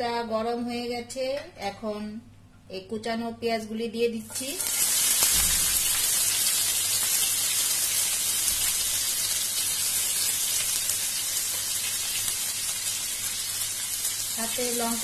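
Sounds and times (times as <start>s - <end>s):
onions sizzling in oil: 4.3s - 15.0s.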